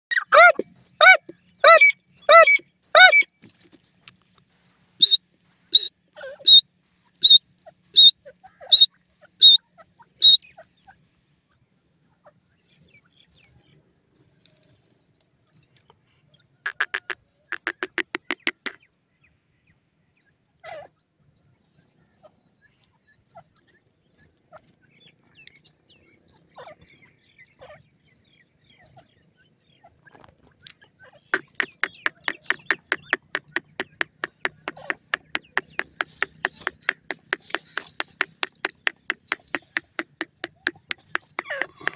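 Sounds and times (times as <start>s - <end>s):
francolin calling: 0.1s - 3.3s, 5.0s - 6.6s, 8.0s - 10.6s, 16.7s - 18.8s, 30.7s - 41.9s
faint bird chirps: 5.0s - 11.6s.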